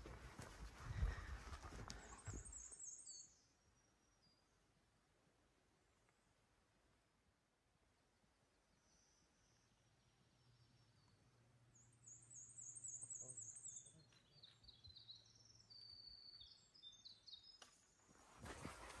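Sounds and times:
footsteps crunching on trail: 0.0s - 2.6s
faint songbird song: 0.0s - 5.0s, 7.9s - 19.0s.

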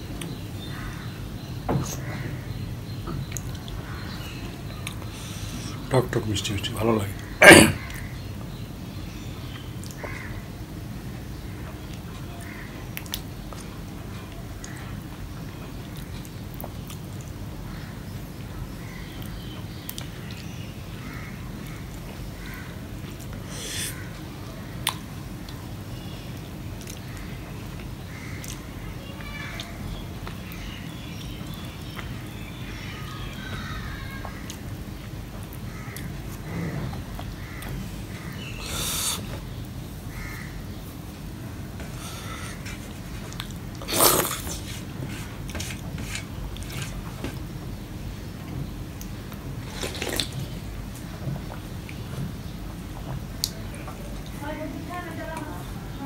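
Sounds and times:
man slurping and sucking food: 23.4s - 24.0s, 38.6s - 39.4s, 43.8s - 46.9s.

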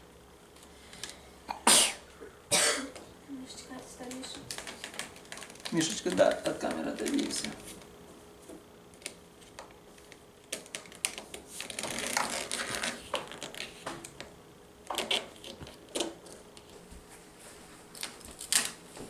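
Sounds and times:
decal rustling and scraping: 10.8s - 14.1s, 15.0s - 19.0s.

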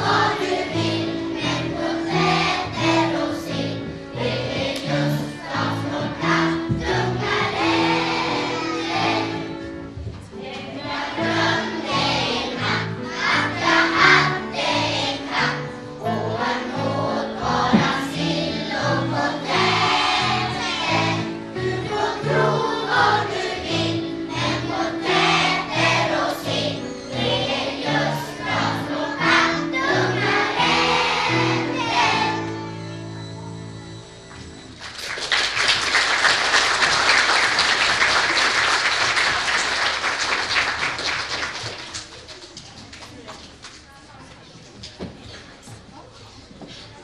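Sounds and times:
choir singing: 0.0s - 9.6s, 10.4s - 32.6s.

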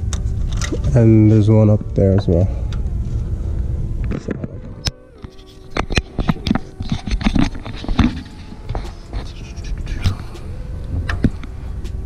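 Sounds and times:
camera handling noise: 4.1s - 10.2s.

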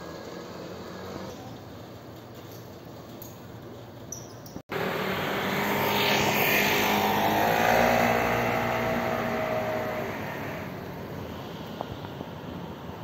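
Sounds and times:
motor vehicle passing: 4.7s - 11.8s.

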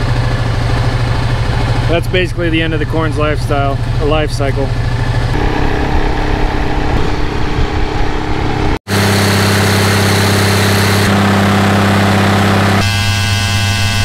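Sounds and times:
low rumble: 0.0s - 8.8s
diesel engine running steadily: 0.0s - 14.0s.

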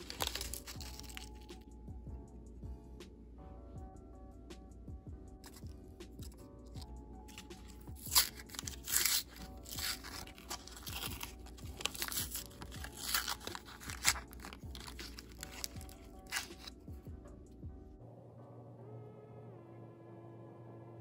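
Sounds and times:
paper wrapper crinkling and tearing: 0.0s - 1.5s, 5.4s - 16.8s
soft background music: 0.0s - 21.0s.

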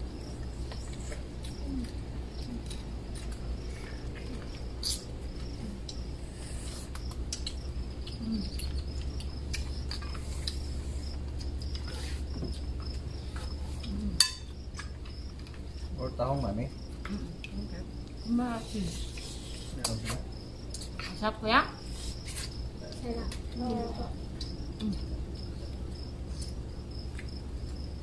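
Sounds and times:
crickets chirping: 0.0s - 28.0s.

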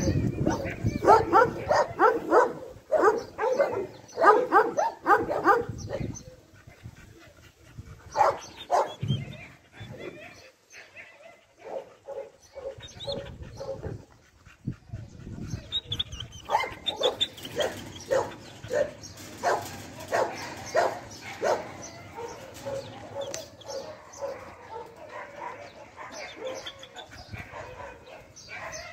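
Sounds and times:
dog barking loudly: 0.5s - 6.0s, 8.2s - 9.0s, 16.5s - 26.6s.

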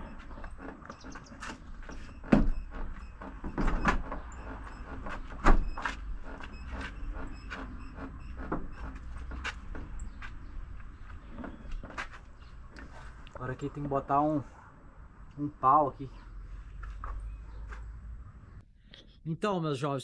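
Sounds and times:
knocks and clunks on vehicle body: 0.0s - 13.0s.

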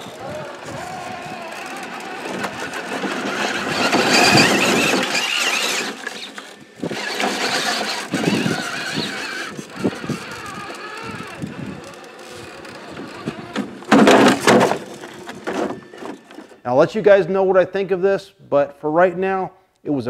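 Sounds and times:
high-pitched electric motor whine: 0.0s - 13.9s.

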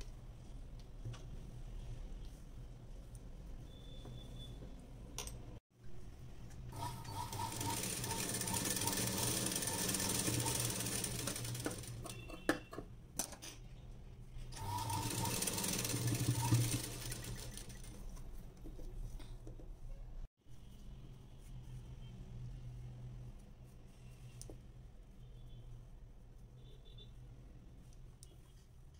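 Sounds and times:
sewing machine stitching: 6.7s - 12.5s, 14.6s - 18.1s.

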